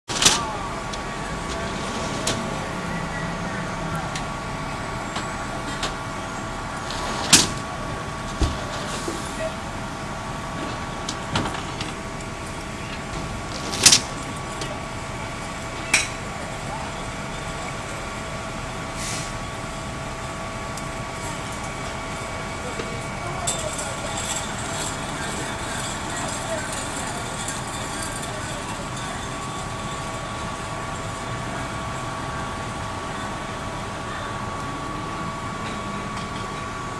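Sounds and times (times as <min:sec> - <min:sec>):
constant whining tones: 0:00.1 - 0:36.9
fire engine drone: 0:00.1 - 0:36.9.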